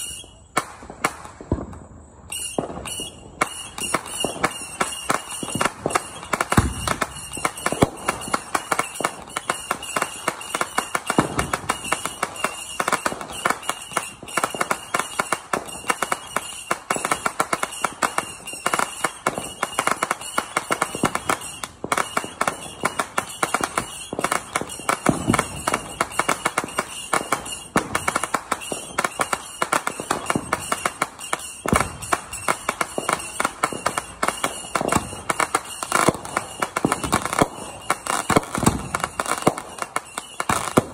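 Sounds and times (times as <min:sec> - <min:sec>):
fireworks popping and crackling: 0:00.0 - 0:40.9
deep firework bangs: 0:00.7 - 0:09.4, 0:20.9 - 0:39.8.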